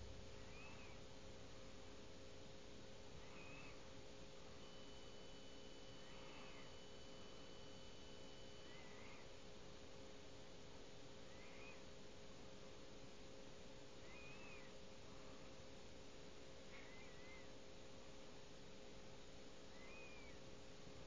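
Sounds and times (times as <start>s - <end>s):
steady low hum: 0.0s - 21.0s
faint short chirp: 3.2s - 3.8s, 11.3s - 11.9s, 14.0s - 14.7s, 16.7s - 17.5s, 19.7s - 20.4s.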